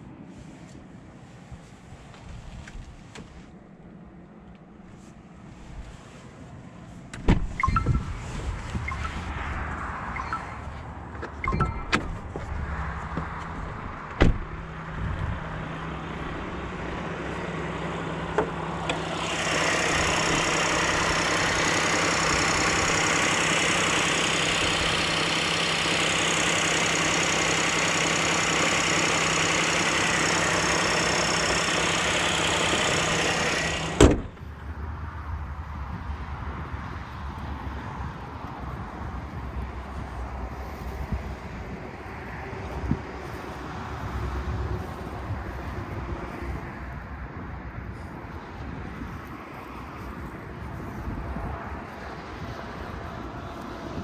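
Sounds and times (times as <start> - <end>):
car bonnet shutting: 7.1 - 9.2, 11.2 - 12.5, 32.9 - 34.5
car engine running: 7.4 - 34.8.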